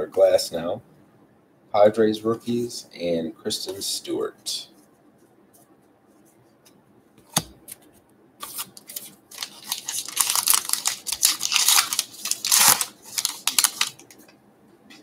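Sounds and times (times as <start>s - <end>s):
wrapper tearing and crinkling: 8.4s - 14.1s.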